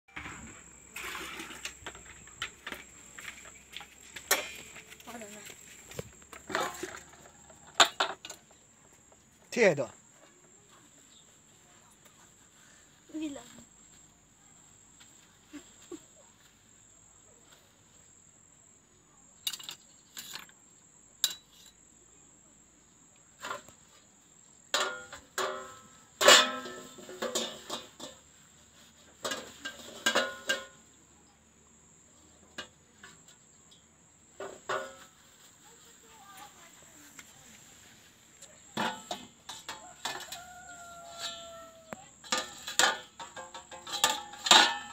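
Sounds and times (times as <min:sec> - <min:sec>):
dishes knocking and clattering: 0:24.8 - 0:28.3, 0:29.2 - 0:30.8, 0:34.4 - 0:35.1, 0:38.8 - 0:40.6, 0:42.2 - 0:44.9.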